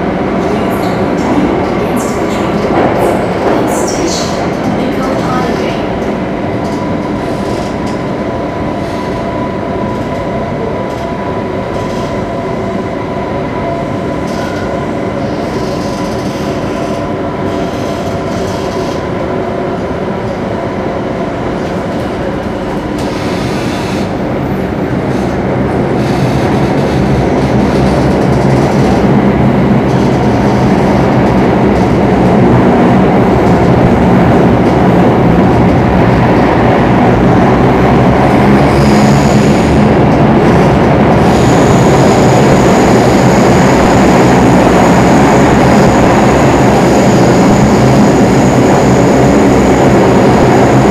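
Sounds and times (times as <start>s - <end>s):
train rumbling in tunnel: 0.0s - 50.9s.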